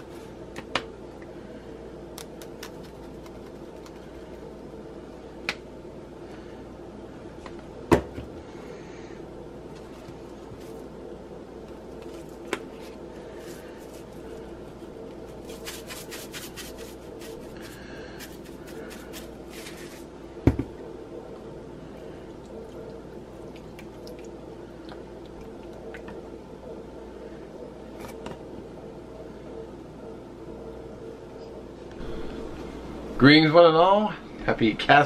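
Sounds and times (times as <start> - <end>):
steady low hum: 0.0 - 35.0
seasoning shaker rattling: 15.3 - 19.8.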